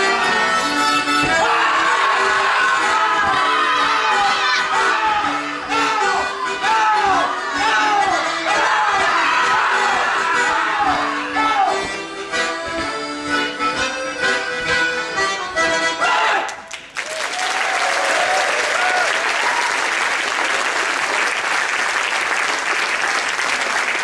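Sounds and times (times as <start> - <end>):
accordions playing dance tune: 0.0 - 16.4
audience clapping and cheering: 1.4 - 5.0, 16.3 - 24.0
person shouting: 1.4 - 11.8, 16.0 - 16.5.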